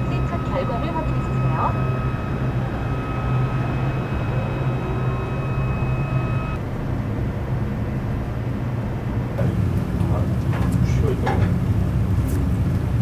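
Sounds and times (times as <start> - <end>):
kitchen machinery drone: 0.0 - 6.6
thin high whine: 0.0 - 6.6.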